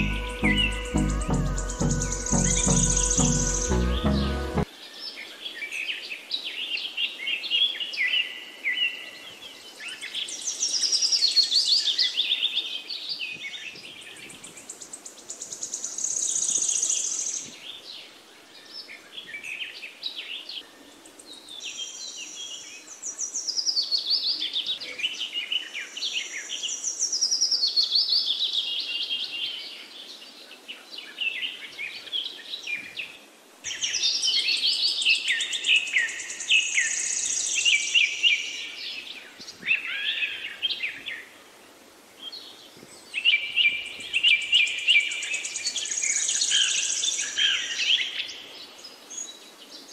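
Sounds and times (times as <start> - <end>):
faint background hiss: 0.0 - 49.9
songbirds chirping: 0.0 - 49.9.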